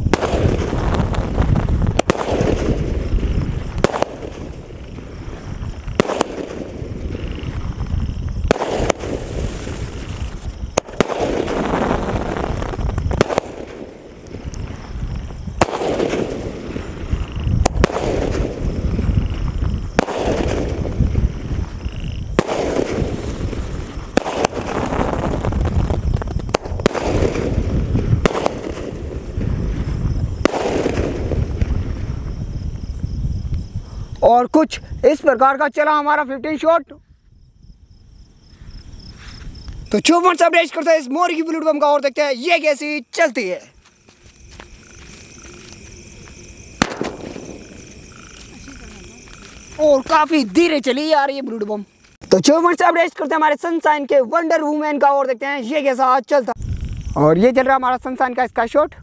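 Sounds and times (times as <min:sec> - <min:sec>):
firework bangs: 0:00.0 - 0:33.4, 0:44.1 - 0:51.2
firework crackling: 0:00.0 - 0:34.0, 0:39.1 - 0:53.9.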